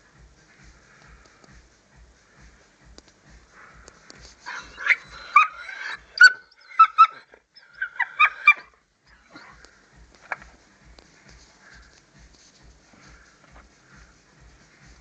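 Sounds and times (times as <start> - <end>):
dog whining and yipping: 4.4 - 9.6.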